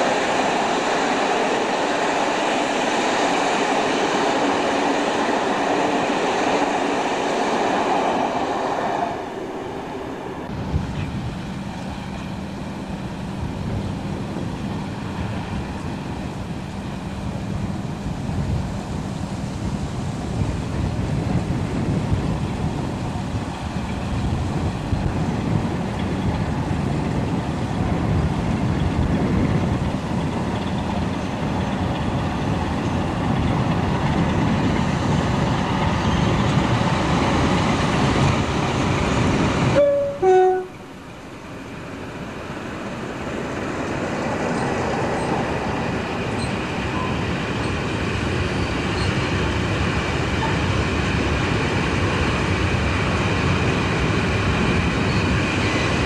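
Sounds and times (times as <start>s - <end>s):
diesel locomotive engine: 0.0s - 56.0s
short tones: 39.8s - 40.9s.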